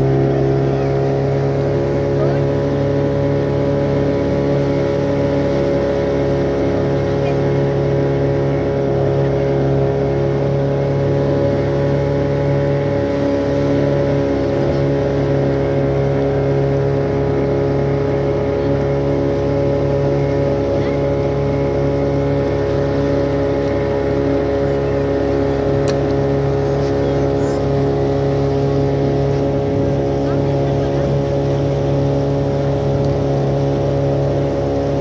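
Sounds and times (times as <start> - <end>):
motorboat engine droning: 0.0 - 35.0.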